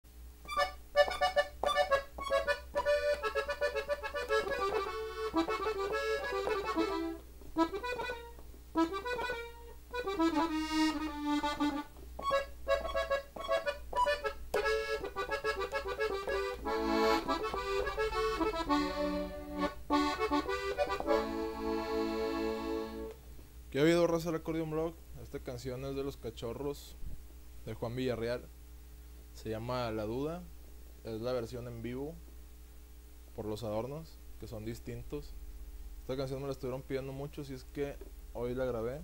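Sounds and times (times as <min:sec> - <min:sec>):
button accordion playing: 0:00.5 - 0:23.2.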